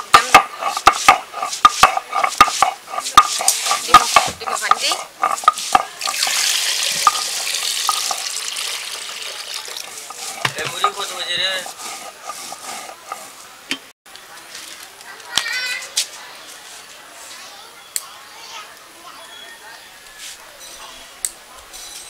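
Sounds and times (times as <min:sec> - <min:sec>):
stone on stone grinding: 0:00.0 - 0:08.3, 0:09.2 - 0:13.4
water pouring into metal pot: 0:05.9 - 0:10.5.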